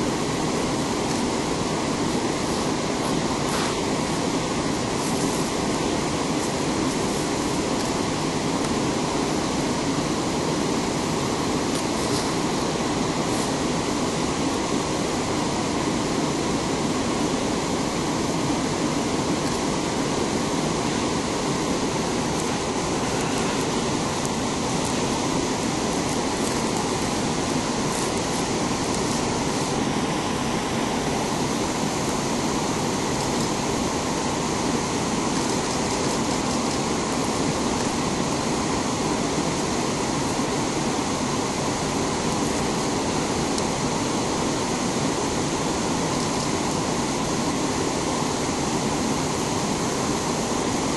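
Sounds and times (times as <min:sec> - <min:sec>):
rushing white water: 0:00.0 - 0:50.9.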